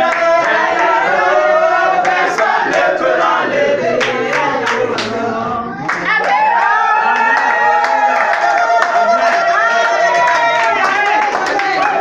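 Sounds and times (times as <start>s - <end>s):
group of voices singing and chanting: 0.0s - 12.0s
hand claps: 8.1s - 12.0s.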